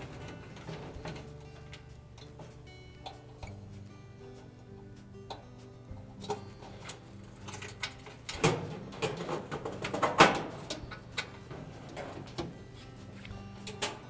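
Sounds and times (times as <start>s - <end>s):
knocks and clicks in dryer cabinet: 0.0s - 1.6s, 8.3s - 12.6s.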